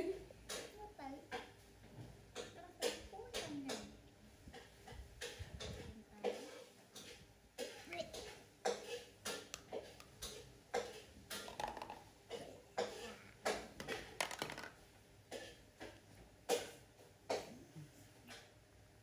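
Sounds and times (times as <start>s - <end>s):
plastic toy knocking on wood: 11.4s - 12.1s, 13.8s - 14.8s.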